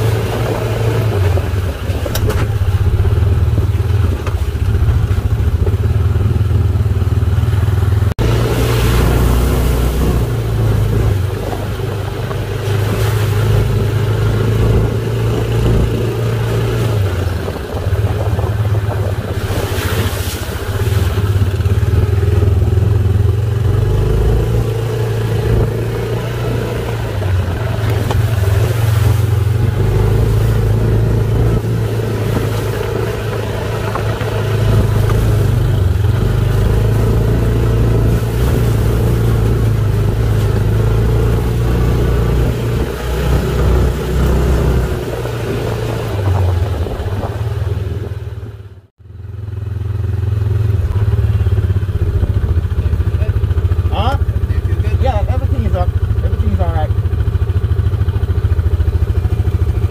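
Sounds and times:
off-road vehicle engine revving: 0.0s - 59.9s.

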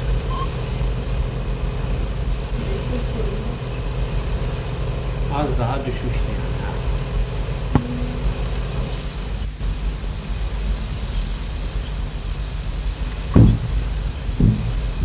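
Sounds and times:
tape hiss and hum: 0.0s - 15.0s.

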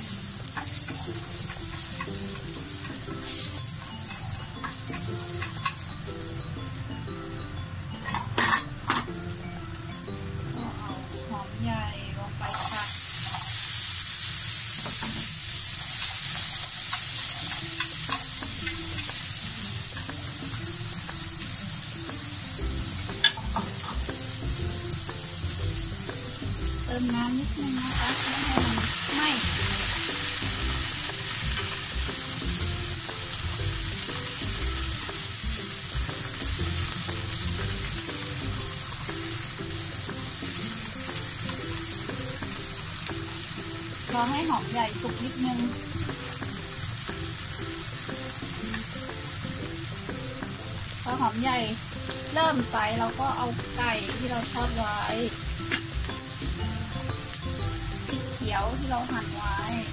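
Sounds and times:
onion sizzling in hot oil: 0.0s - 59.9s
chopsticks stirring in pan: 14.8s - 21.0s.

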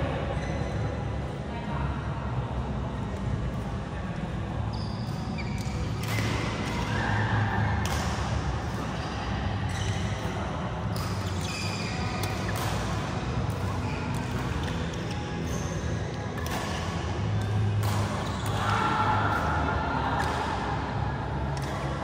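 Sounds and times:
steady low hum: 0.0s - 22.0s
shoes squeaking on court: 0.3s - 0.8s, 4.7s - 7.0s, 8.7s - 18.6s
shuttlecock struck by rackets: 12.2s - 13.2s, 16.4s - 18.6s.

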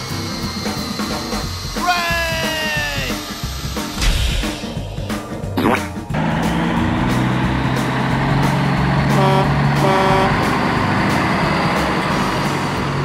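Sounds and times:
heavy truck engine running: 0.0s - 13.0s
truck horn toots: 8.8s - 10.8s.

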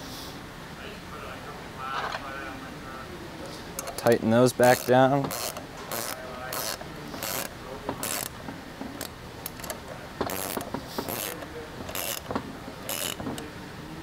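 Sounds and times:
wrench ratcheting: 3.8s - 8.4s, 9.0s - 13.4s.

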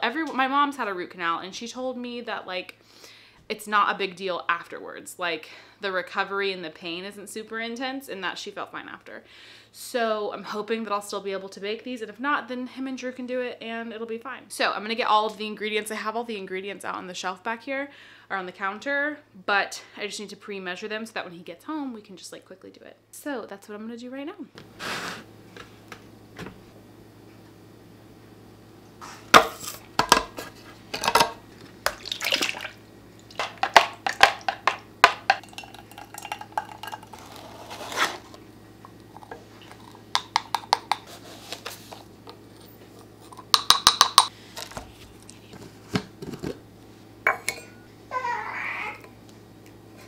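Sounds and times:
faint steady hum: 0.0s - 50.0s
jars and measuring cups clinking: 33.3s - 37.3s, 47.3s - 47.8s.

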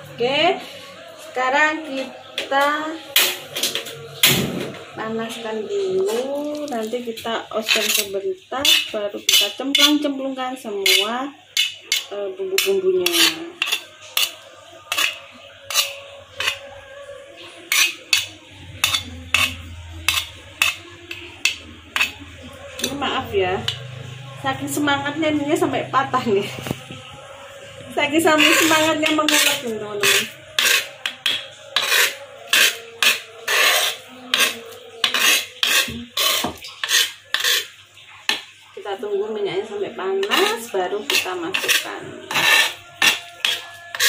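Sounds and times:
stone pestle grinding in mortar: 6.1s - 10.1s, 10.8s - 16.8s, 17.7s - 24.0s, 27.9s - 38.4s, 40.2s - 44.0s.

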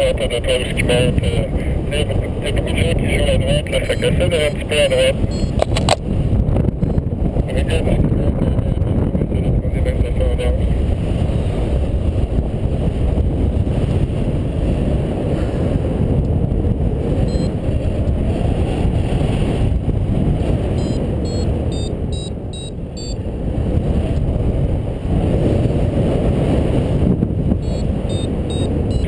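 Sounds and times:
wind buffeting microphone: 0.0s - 29.0s
short high electronic beeps: 5.3s - 5.6s, 17.3s - 17.5s, 20.8s - 23.2s, 27.6s - 29.0s.

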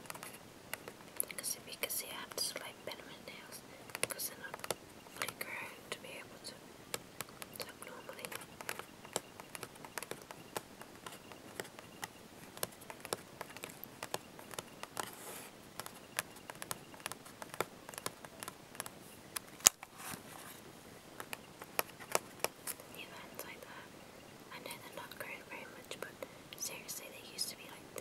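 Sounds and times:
fingernails tapping on laptop casing: 8.3s - 15.2s, 15.8s - 19.9s.

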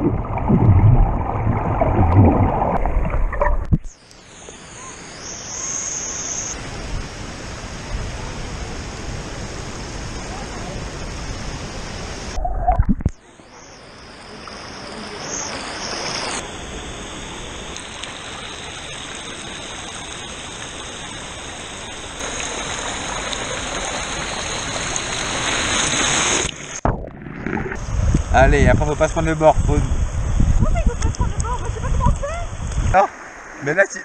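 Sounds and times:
water pouring close by: 0.0s - 3.8s, 18.0s - 27.8s
river water flowing: 13.2s - 26.8s, 32.6s - 34.0s.

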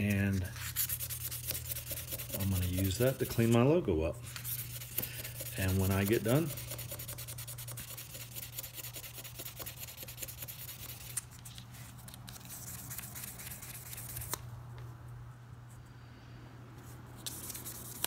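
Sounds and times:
sandpaper scratching on steel: 0.0s - 3.6s, 4.4s - 11.2s
steady low hum: 0.0s - 18.0s.

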